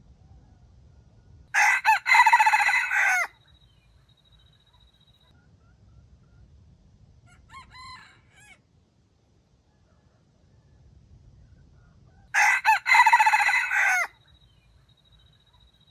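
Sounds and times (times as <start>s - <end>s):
rooster crowing: 1.5s - 3.4s, 7.3s - 8.6s, 12.3s - 14.2s.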